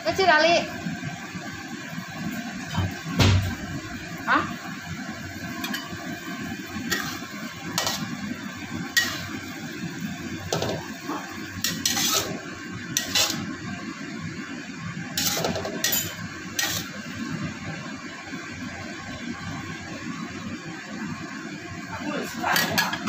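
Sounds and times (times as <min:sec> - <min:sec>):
metal ladle scraping a wok: 0:06.8 - 0:08.2, 0:08.9 - 0:09.5, 0:11.6 - 0:13.5, 0:15.2 - 0:17.0.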